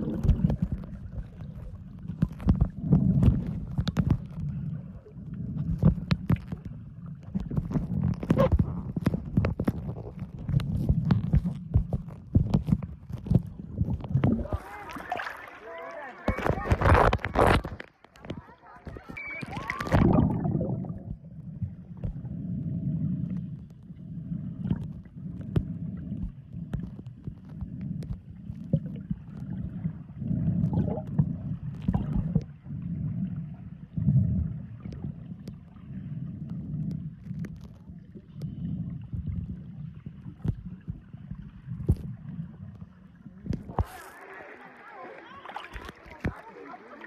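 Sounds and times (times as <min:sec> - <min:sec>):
muffled underwater rumble: 0:00.0 - 0:15.3, 0:16.3 - 0:44.3
water sloshing: 0:00.0 - 0:47.0.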